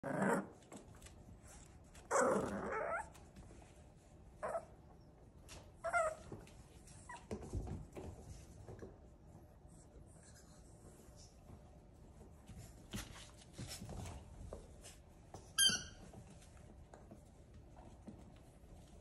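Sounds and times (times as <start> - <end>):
soft knocks and scuffles: 11.4 - 19.0.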